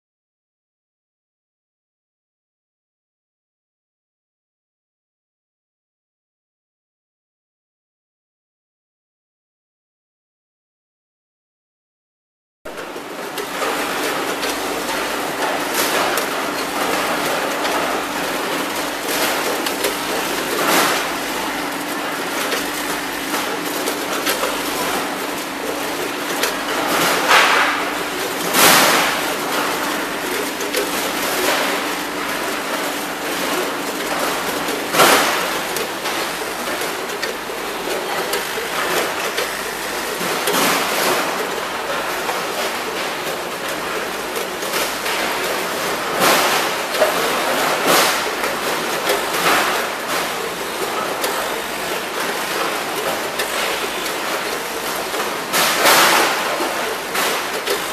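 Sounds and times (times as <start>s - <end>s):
weighing machine humming: 12.7s - 57.9s.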